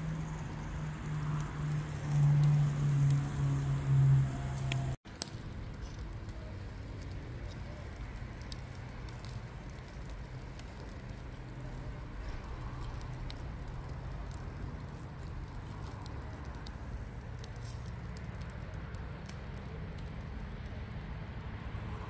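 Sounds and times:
grill fire crackling: 0:00.0 - 0:22.0.

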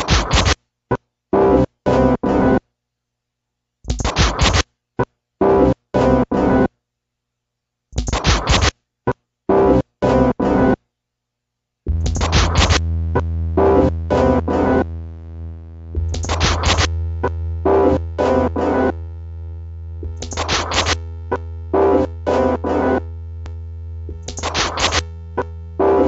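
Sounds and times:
chopped synth stabs: 0:00.0 - 0:00.6, 0:03.9 - 0:04.6, 0:08.0 - 0:08.7, 0:11.9 - 0:15.0, 0:15.8 - 0:19.1, 0:20.0 - 0:26.0
low bass drone: 0:11.9 - 0:20.4.

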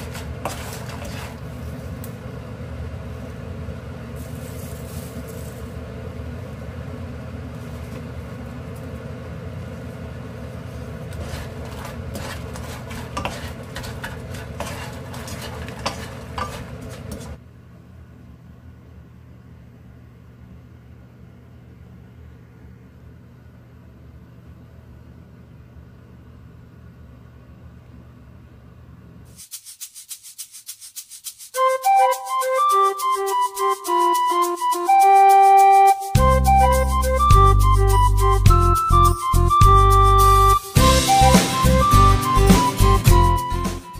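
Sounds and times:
chips rattling in frying pan: 0:11.2 - 0:17.4, 0:29.3 - 0:31.7
light rattling music: 0:29.4 - 0:43.9.

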